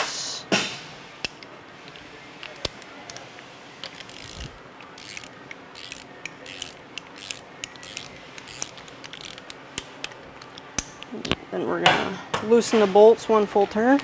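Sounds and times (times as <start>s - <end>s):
ratcheting torque wrench clicking: 3.8s - 11.1s.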